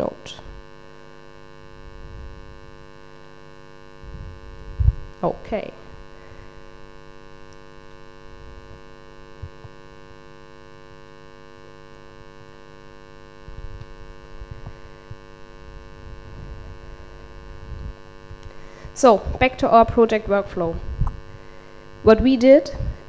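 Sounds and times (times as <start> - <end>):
electrical mains hum: 0.0 - 23.0
low rumbling noise: 4.0 - 7.4, 13.5 - 23.0.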